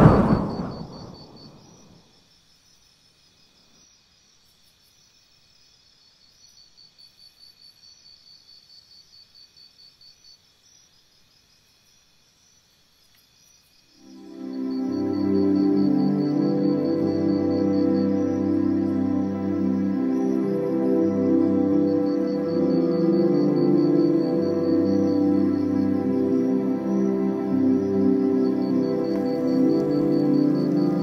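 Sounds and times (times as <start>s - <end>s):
whoosh: 0.0s - 1.6s.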